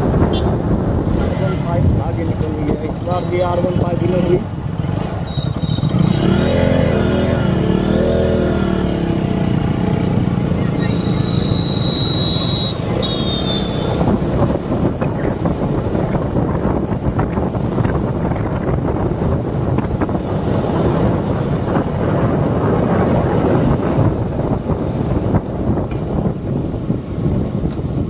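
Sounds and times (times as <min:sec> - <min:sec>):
wind buffeting microphone: 0:00.0 - 0:10.9, 0:11.5 - 0:28.0
high whistle-like tone: 0:05.3 - 0:05.9, 0:10.8 - 0:14.0.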